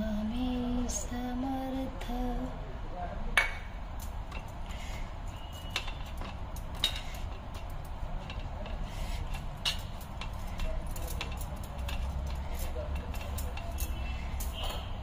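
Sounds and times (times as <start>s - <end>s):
metallic clinks of brass vessels: 5.3s - 15.0s.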